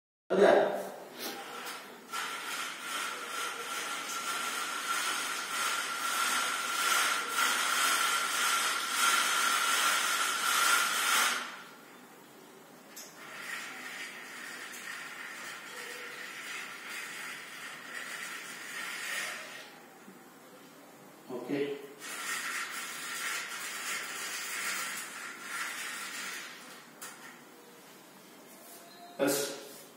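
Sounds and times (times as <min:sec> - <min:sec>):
vertical blind sliding closed: 0:01.2 - 0:11.8, 0:13.0 - 0:19.8, 0:22.0 - 0:27.5.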